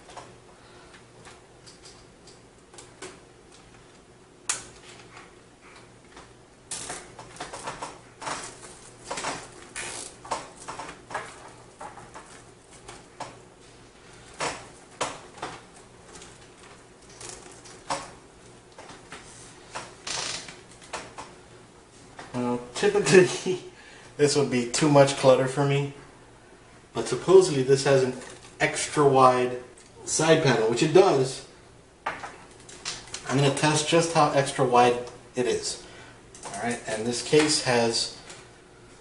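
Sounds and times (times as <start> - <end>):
cables rustling and scraping: 0.0 - 23.4, 27.3 - 31.0.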